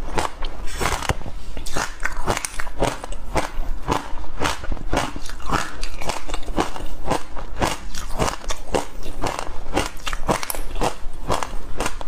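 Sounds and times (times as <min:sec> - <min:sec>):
ice crunching in mouth: 0:00.1 - 0:12.0.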